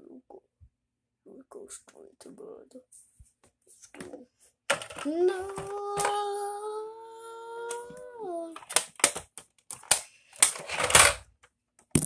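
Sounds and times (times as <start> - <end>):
toy figures clattering on wood: 4.7 - 6.3, 8.6 - 11.2
child wailing: 5.1 - 8.6.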